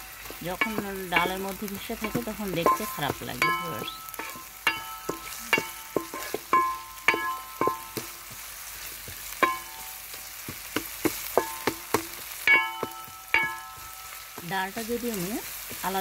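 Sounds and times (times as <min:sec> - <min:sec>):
wooden spatula scraping a pan: 0:00.0 - 0:09.6
onions sizzling in oil: 0:00.0 - 0:16.0.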